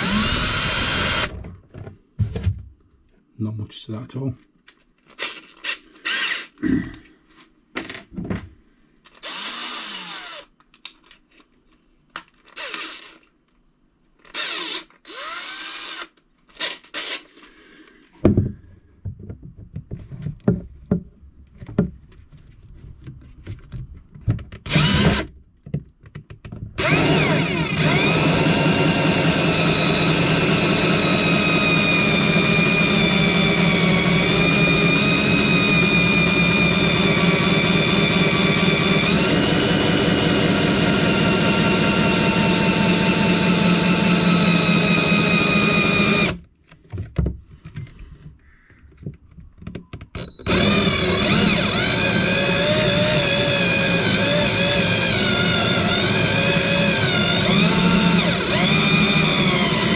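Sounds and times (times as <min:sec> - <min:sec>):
drill motor whining: 0:00.0 - 0:01.4, 0:05.2 - 0:06.5, 0:09.2 - 0:10.5, 0:12.5 - 0:13.2, 0:14.2 - 0:17.2, 0:24.7 - 0:25.3, 0:26.8 - 0:46.4, 0:50.2 - 0:59.9
drill scraping plastic: 0:00.0 - 0:01.4, 0:09.1 - 0:10.5, 0:12.4 - 0:13.3, 0:14.2 - 0:17.4, 0:24.6 - 0:25.3, 0:26.8 - 0:46.5, 0:50.2 - 0:59.9.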